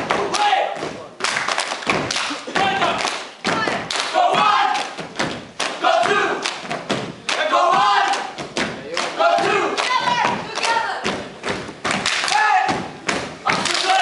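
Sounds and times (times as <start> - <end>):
group shouting and chanting: 0.0 - 0.8, 2.4 - 5.0, 5.6 - 6.6, 7.2 - 11.2, 12.2 - 14.0
feet stamping on stage floor: 1.8 - 13.7.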